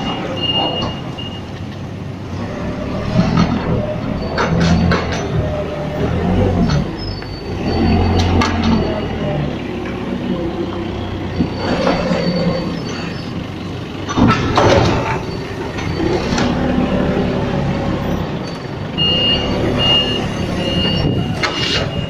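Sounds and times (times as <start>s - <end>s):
reversing beeps: 0.0s - 1.5s, 7.1s - 9.4s, 18.5s - 22.0s
forklift engine running: 0.0s - 22.0s
metal clanks: 14.0s - 16.6s.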